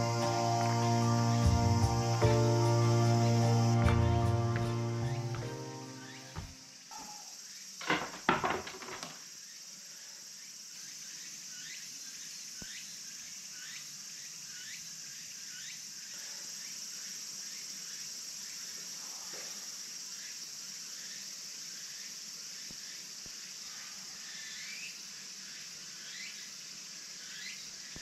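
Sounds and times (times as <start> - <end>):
insects shrilling chorus: 0.0 - 7.9, 9.1 - 28.0
clatter of sharp knocks: 7.8 - 9.2.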